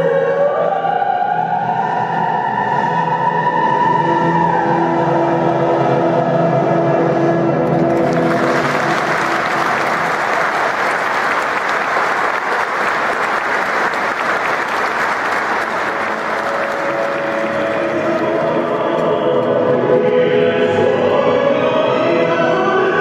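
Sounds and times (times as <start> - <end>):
music: 0.0 - 23.0
audience applauding: 7.7 - 19.2
operatic singing: 8.6 - 23.0.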